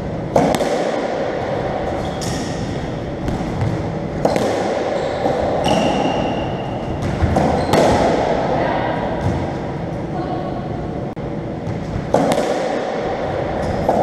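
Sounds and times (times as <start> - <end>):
ball hitting racquet and walls: 0.0 - 10.1, 11.4 - 14.0.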